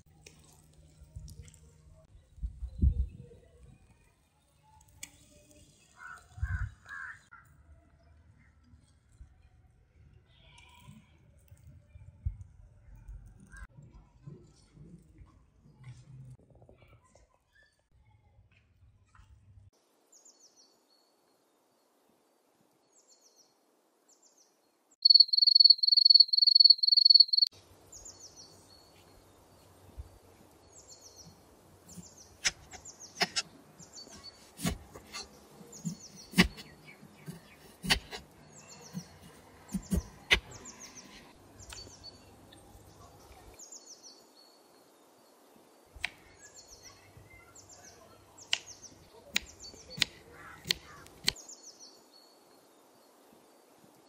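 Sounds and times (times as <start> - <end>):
small birds chirping: 24.2 - 53.3
rapid high-pitched chirping call: 25.0 - 27.5
knife cutting onion on board: 31.9 - 33.5, 34.1 - 38.3, 38.9 - 41.3, 49.4 - 51.4.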